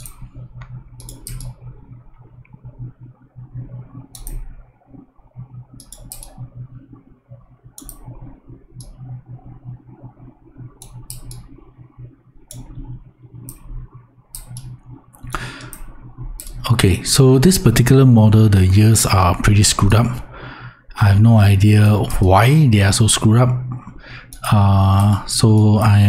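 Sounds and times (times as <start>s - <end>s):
computer mouse clicks: 0.0s - 1.7s, 3.7s - 4.6s, 5.7s - 7.1s, 7.7s - 9.1s, 10.6s - 11.6s, 12.5s - 13.7s, 14.3s - 16.6s
low steady hum: 0.0s - 26.0s.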